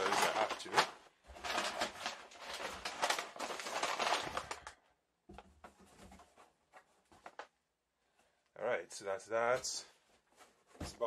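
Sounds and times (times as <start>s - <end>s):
packaging crinkling and rustling: 0.0s - 4.8s, 5.8s - 7.6s.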